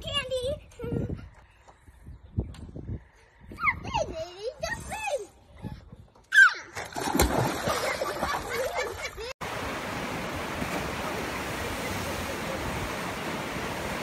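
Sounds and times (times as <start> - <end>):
splash into pool: 6.6 - 9.1, 9.8 - 14.0
water rushing: 9.4 - 14.0.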